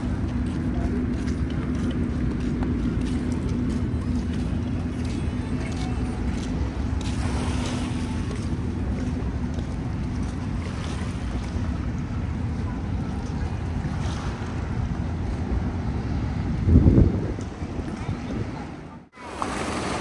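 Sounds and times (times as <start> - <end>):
wind buffeting microphone: 0.0 - 19.2.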